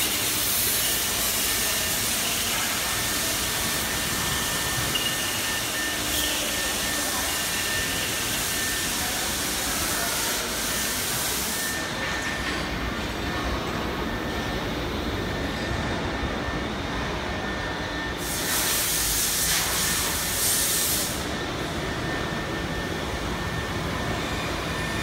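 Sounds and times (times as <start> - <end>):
pneumatic air hiss: 0.0 - 11.9, 18.2 - 21.3
machine hum with high whine: 0.0 - 25.0.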